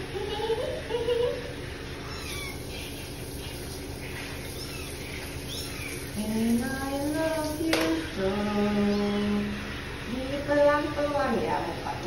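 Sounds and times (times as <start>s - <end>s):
kitten mewing: 2.0s - 3.0s, 4.4s - 5.9s.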